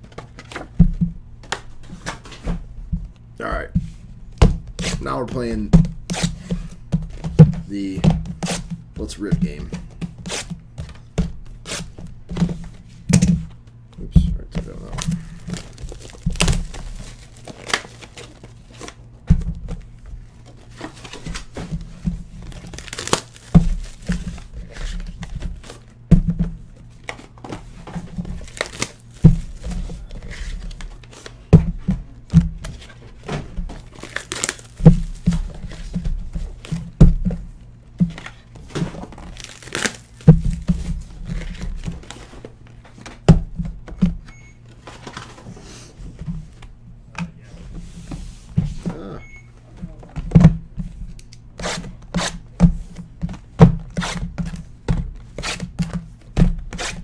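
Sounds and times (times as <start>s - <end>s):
plastic wrapper crinkling: 15.4s - 18.7s, 22.5s - 24.1s, 33.8s - 34.8s, 39.1s - 40.2s.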